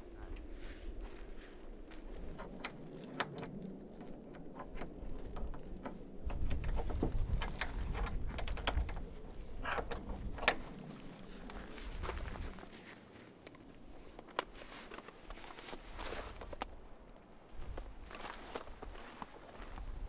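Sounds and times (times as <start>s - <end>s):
small metal clicks: 2.2s - 10.9s.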